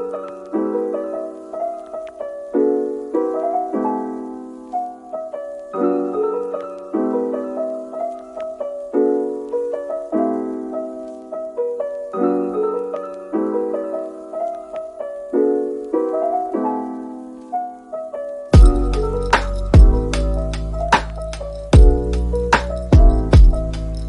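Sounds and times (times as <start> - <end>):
piano music: 0.0 - 24.0.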